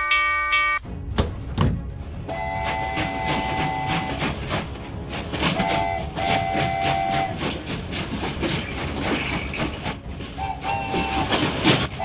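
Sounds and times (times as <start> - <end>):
train wheels clicking: 1.2 - 12.0
train whistle: 2.2 - 4.6, 5.4 - 7.6, 10.3 - 12.0.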